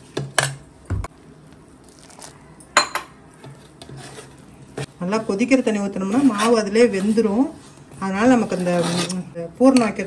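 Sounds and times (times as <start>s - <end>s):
metal spoon scraping metal bowl: 3.4s - 4.4s, 6.0s - 9.9s.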